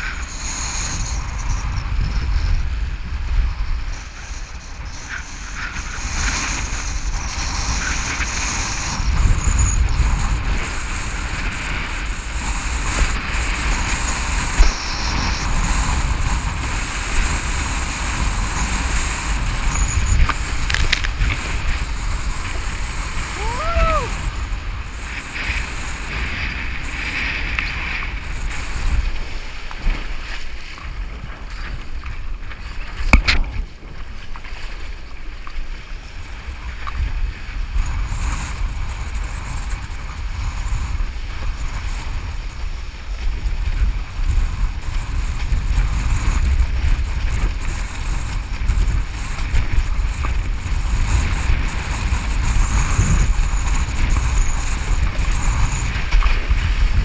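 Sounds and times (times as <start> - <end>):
water rushing and spray hissing: 0.0 - 57.0
wind buffeting microphone: 0.0 - 57.0.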